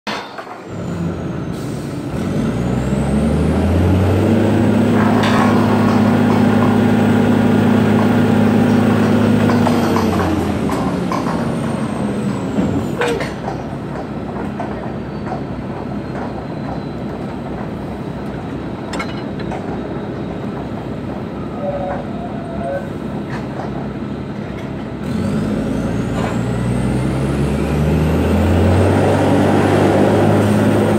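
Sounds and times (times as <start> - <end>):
metal clank: 0.1 - 0.7, 4.9 - 6.9, 7.9 - 11.5, 18.8 - 19.8
rig engine droning: 0.7 - 30.9.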